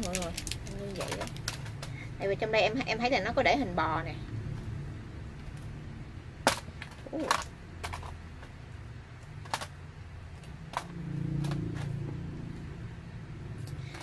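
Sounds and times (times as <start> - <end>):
foil and packaging crackling: 0.0 - 1.9.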